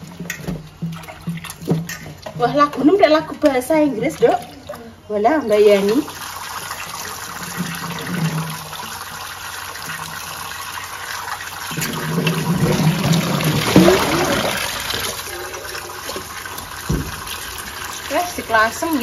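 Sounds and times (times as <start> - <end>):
water splashing in colander: 0.0 - 4.9, 5.5 - 19.0
tap water running into sink: 5.5 - 19.0.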